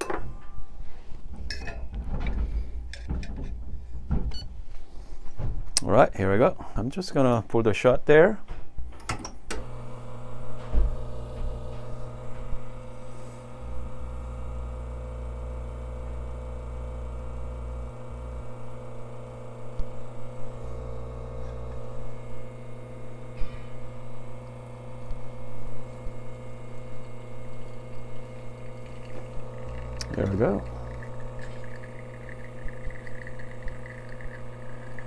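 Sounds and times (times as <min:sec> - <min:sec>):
espresso machine pump humming: 0:09.6 - 0:35.0.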